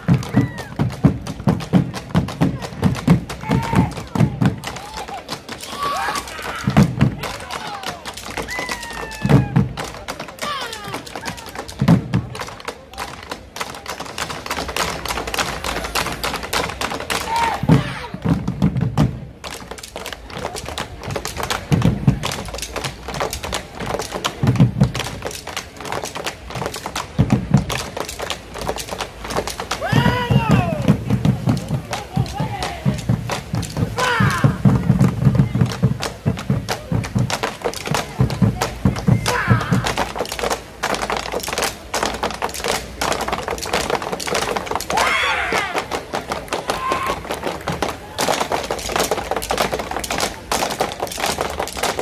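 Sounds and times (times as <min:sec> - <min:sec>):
deep drum beats: 0:00.0 - 0:04.8, 0:06.6 - 0:07.5, 0:08.4 - 0:10.0, 0:15.4 - 0:19.4, 0:20.3 - 0:52.0
sharp clicking stick strokes: 0:19.4 - 0:52.0.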